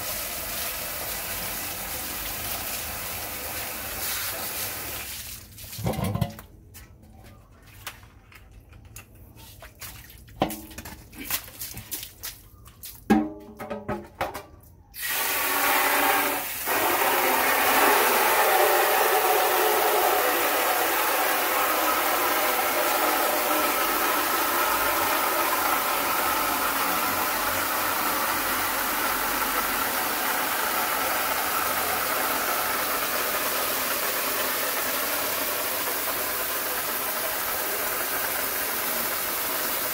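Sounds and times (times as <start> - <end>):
water gushing into metal basin: 0.0 - 6.4, 15.0 - 39.9.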